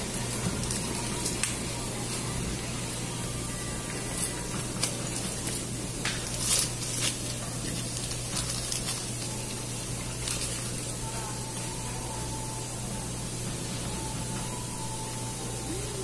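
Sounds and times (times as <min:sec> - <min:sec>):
cellophane wrapper crinkling: 0:00.0 - 0:02.2, 0:04.0 - 0:11.0
low background hum: 0:00.0 - 0:16.0.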